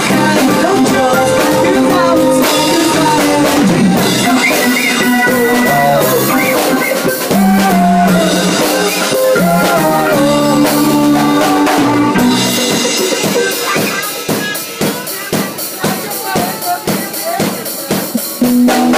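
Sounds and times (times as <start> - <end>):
electric guitar: 0.0 - 14.3, 17.9 - 18.9
drum kit: 0.0 - 18.9.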